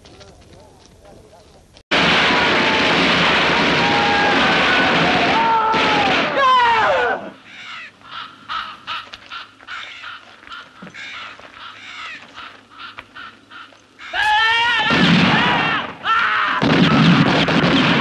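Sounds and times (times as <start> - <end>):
people shouting: 3.7 - 7.4, 14.1 - 17.0
crows cawing: 7.4 - 14.7.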